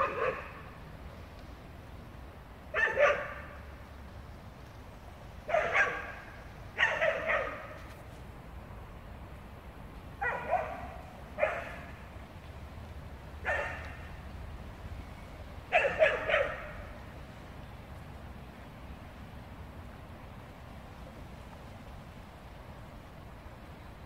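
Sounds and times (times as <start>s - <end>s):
dog barking: 0.0s - 0.6s, 2.7s - 3.5s, 5.5s - 6.2s, 6.8s - 7.7s, 10.2s - 11.8s, 13.4s - 13.9s, 15.7s - 16.8s.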